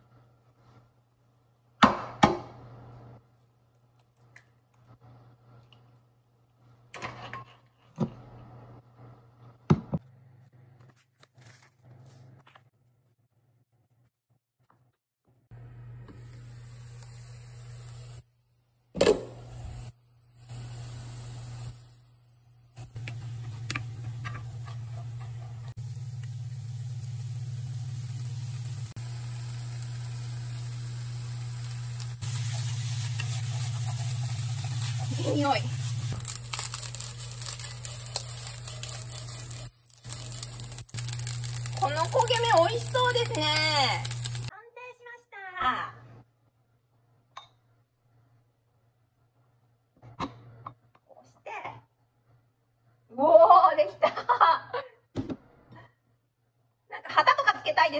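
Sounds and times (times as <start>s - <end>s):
low hum: 15.5s - 44.5s
rice sizzling in a frying pan: 16.0s - 18.7s, 19.3s - 44.5s
seasoning packet rustling: 23.2s - 44.5s
chopsticks scraping in pan: 32.2s - 44.5s.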